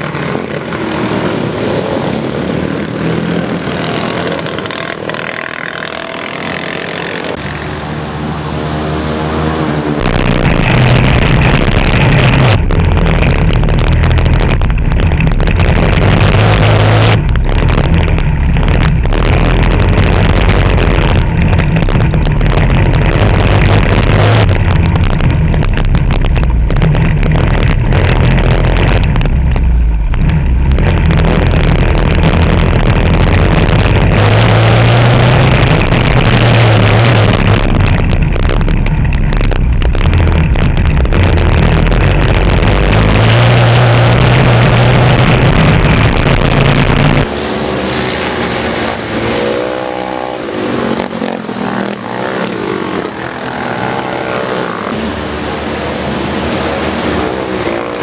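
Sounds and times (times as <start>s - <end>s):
distant kart engine accelerating: 0.0s - 14.0s, 39.0s - 58.0s
kart engine revving: 0.0s - 58.0s
wind noise: 0.0s - 58.0s.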